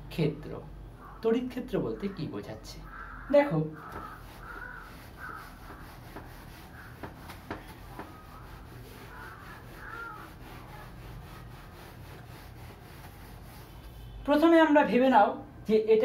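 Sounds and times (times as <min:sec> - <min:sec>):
eraser scrubbing whiteboard: 0:03.8 - 0:14.2.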